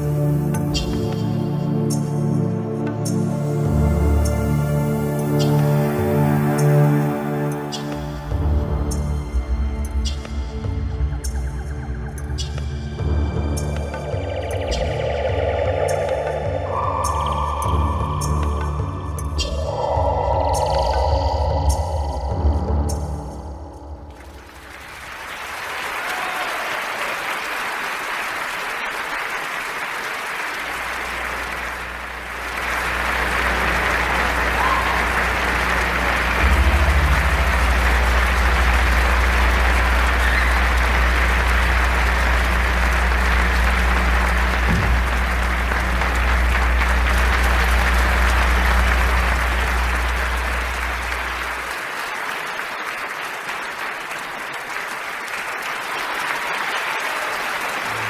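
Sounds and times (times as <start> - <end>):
audience applauding: 0.0 - 2.0, 13.6 - 58.0.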